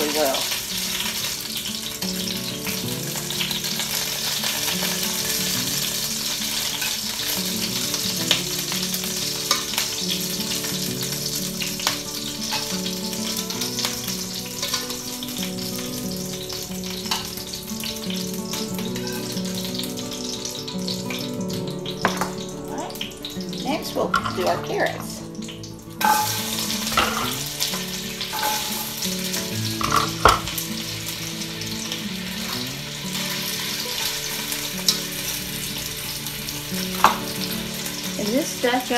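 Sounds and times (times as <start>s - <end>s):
onions sizzling in oil: 0.0s - 38.9s.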